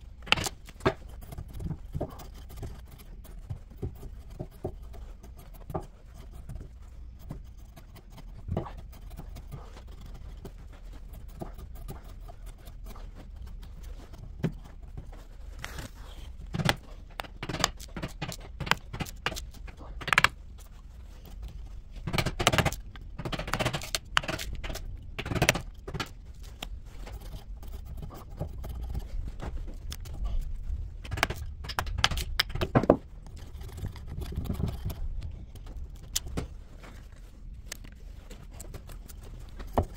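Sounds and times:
chisel scraping wood: 0.2 - 14.8, 15.5 - 20.4.

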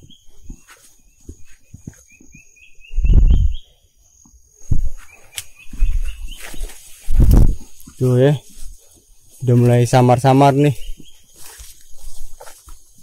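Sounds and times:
high-pitched insect whine: 0.0 - 9.4.

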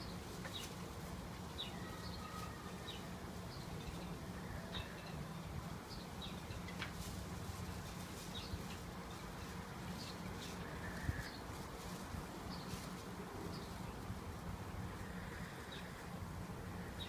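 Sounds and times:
small birds chirping: 0.0 - 16.1.

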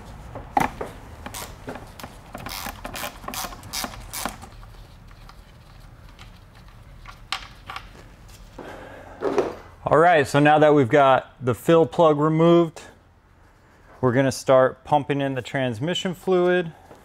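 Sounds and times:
ratchet wrench clicking: 2.5 - 4.4.

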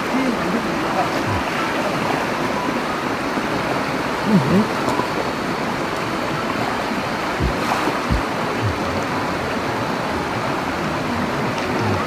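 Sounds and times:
stream water flowing: 0.0 - 12.0
dull low thumps: 7.4 - 8.9.

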